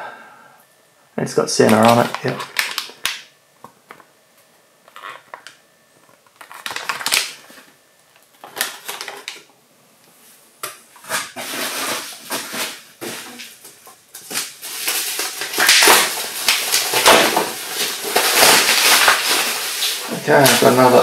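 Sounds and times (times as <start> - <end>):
plastic bag crinkling: 1.6 - 3.3, 4.9 - 9.5, 11.1 - 21.0.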